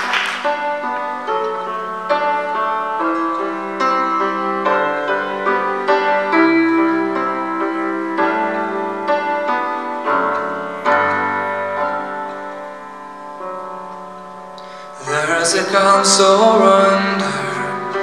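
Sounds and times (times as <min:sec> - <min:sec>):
solo grand piano chords: 0:00.0 - 0:18.0.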